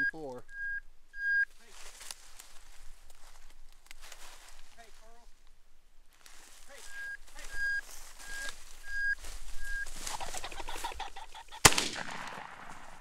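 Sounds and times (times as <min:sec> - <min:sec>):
short high beeps: 0:00.0 - 0:01.6, 0:06.9 - 0:10.0
bird wings fluttering: 0:07.4 - 0:11.7
shotgun shot: 0:11.6 - 0:13.0.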